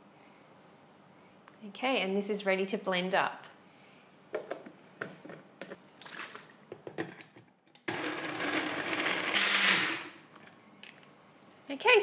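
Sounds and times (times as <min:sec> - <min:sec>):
blender whirring: 0:07.9 - 0:10.2.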